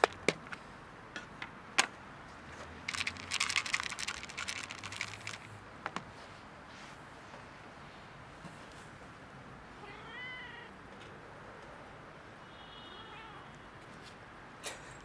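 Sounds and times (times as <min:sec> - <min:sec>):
kibble rattling in plastic tub: 0:02.9 - 0:05.6.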